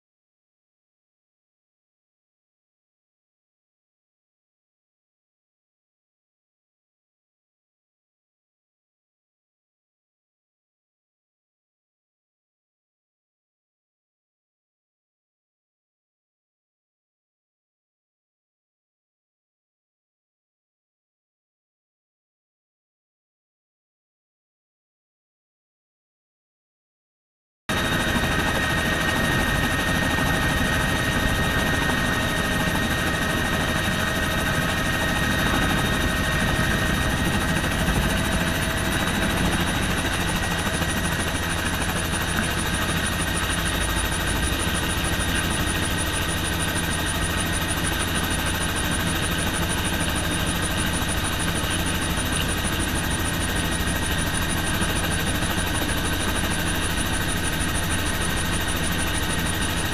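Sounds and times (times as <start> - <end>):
helicopter engine and rotor: 27.7 - 59.9.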